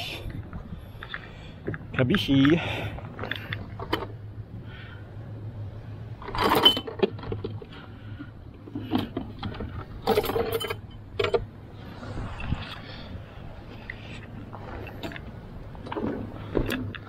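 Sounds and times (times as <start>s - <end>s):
low steady hum: 0.0s - 17.0s
clattering and clinking: 6.2s - 7.7s.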